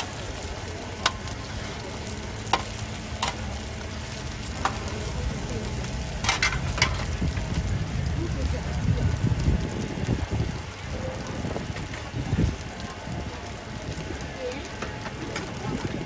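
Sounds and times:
pancakes sizzling in oil: 0.0s - 16.0s
metal spatulas clinking on pan: 6.2s - 7.0s.

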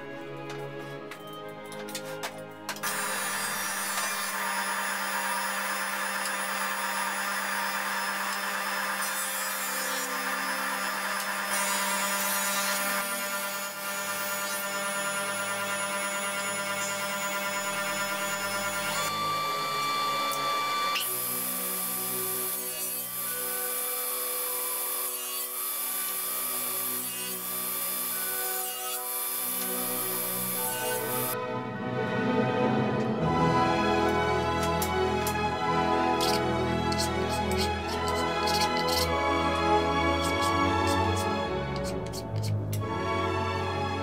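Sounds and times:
jointer-planer running: 2.8s - 31.4s
table saw running: 2.8s - 31.4s, 34.0s - 42.0s.

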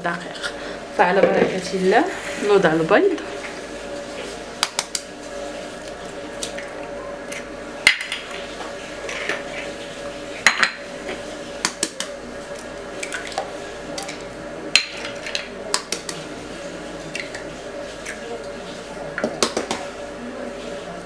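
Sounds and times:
eggs cracking on bowl rim: 14.8s - 16.2s.

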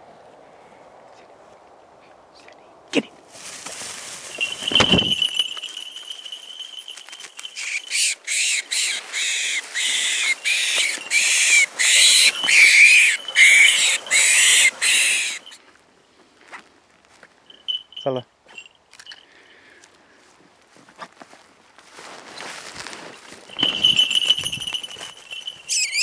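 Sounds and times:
animal screaming in distress: 7.6s - 15.5s.

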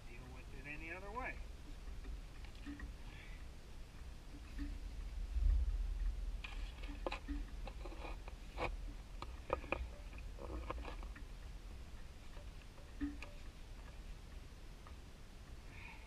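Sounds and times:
low rumble: 1.3s - 12.0s.

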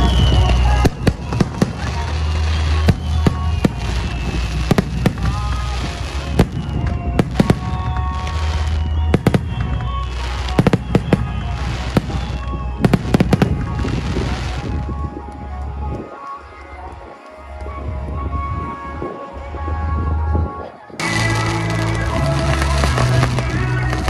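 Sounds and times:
fireworks bangs and crackles: 0.0s - 16.1s, 21.0s - 24.0s
music playing: 0.0s - 24.0s.

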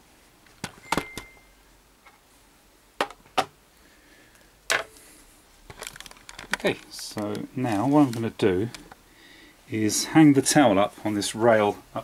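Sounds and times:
short high beep: 0.8s - 1.6s.

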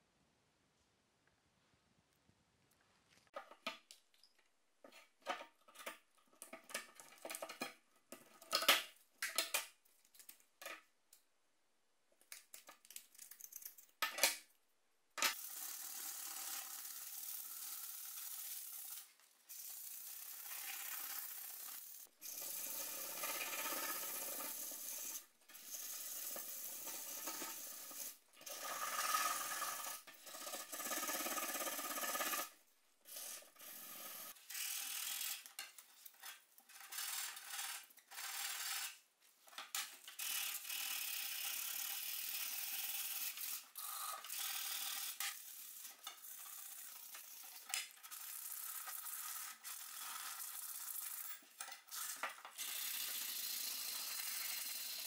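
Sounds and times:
sandpaper scraping rusty blade: 15.3s - 36.2s.

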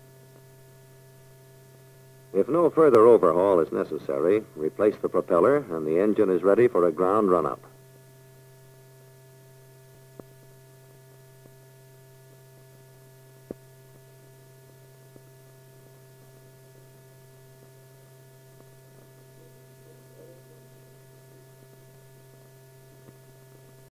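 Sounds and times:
low hum: 2.3s - 7.8s, 15.8s - 23.9s.

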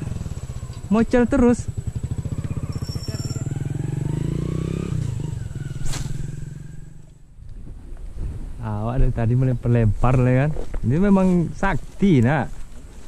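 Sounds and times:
motorcycle engine running: 0.0s - 7.4s.

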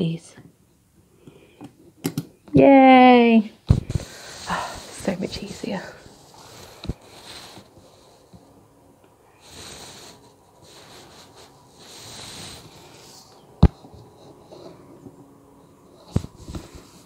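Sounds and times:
soft breaths close to microphone: 3.7s - 17.0s.

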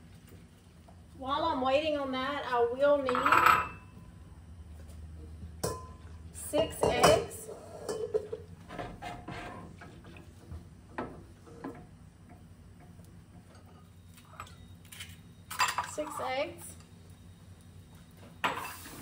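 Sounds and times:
kitchen bowls and utensils clinking: 3.0s - 3.9s, 5.6s - 8.5s, 13.4s - 16.4s.

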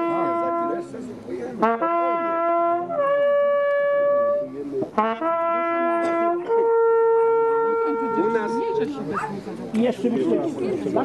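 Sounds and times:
brass hunting horn notes: 0.0s - 1.0s, 1.6s - 8.9s.

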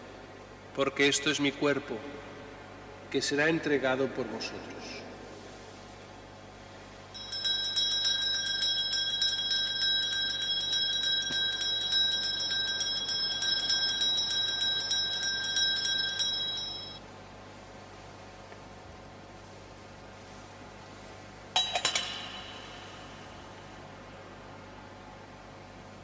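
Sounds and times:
bells jingling: 7.2s - 17.0s.

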